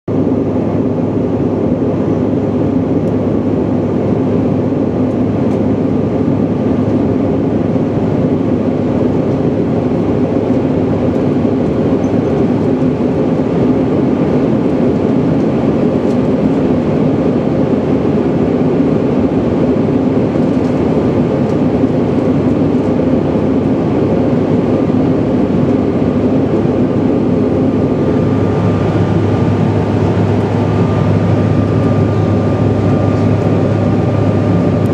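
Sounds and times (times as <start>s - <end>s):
jet airliner cabin noise: 0.1s - 34.9s
low even hum: 8.6s - 34.9s.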